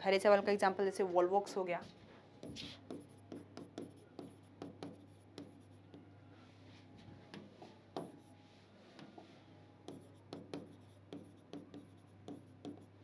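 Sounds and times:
chalk writing on chalkboard: 0:02.4 - 0:06.1, 0:07.3 - 0:08.3, 0:09.0 - 0:13.0.

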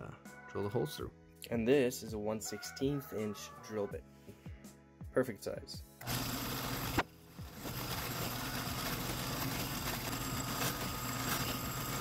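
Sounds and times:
drill press motor running: 0:06.0 - 0:12.0.

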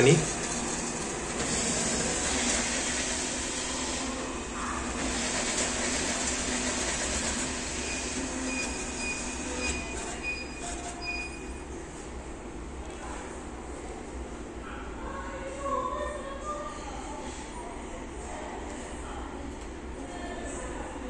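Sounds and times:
atm mechanism running: 0:00.0 - 0:11.7
short high beeps: 0:07.8 - 0:11.6.

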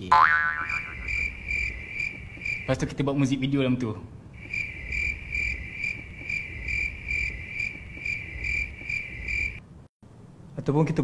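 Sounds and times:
crickets chirping: 0:00.6 - 0:02.9, 0:04.3 - 0:09.6.

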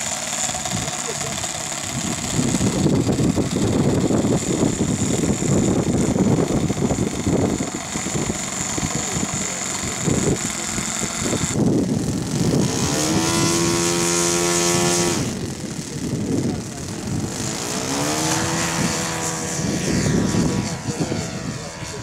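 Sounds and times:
model airplane engine whining: 0:00.0 - 0:22.0
wind rumble on microphone: 0:01.8 - 0:22.0.

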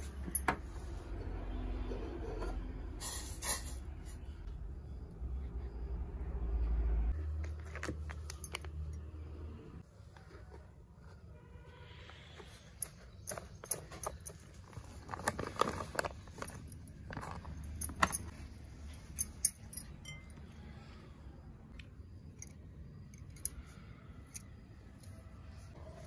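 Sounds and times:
metal bangles clinking: 0:07.6 - 0:09.1, 0:12.8 - 0:14.7, 0:16.4 - 0:20.4, 0:22.3 - 0:25.3.

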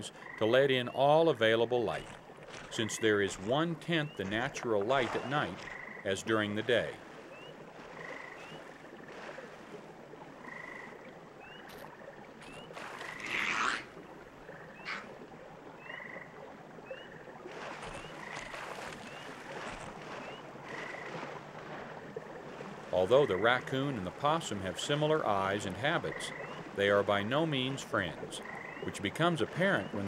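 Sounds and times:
frogs peeping and chirping: 0:01.9 - 0:06.1, 0:07.2 - 0:09.3, 0:10.4 - 0:13.9, 0:14.5 - 0:21.3, 0:25.8 - 0:26.7, 0:28.0 - 0:29.0.

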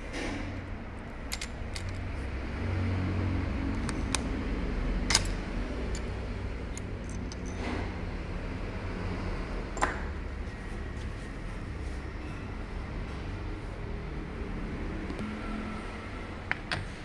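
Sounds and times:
small metal parts clicking: 0:01.2 - 0:02.1, 0:05.1 - 0:07.8.

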